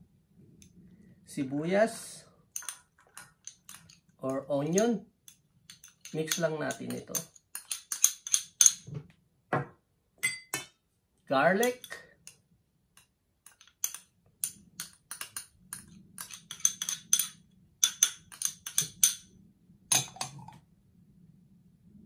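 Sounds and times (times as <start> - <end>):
faint low hum: 19.0 - 22.0.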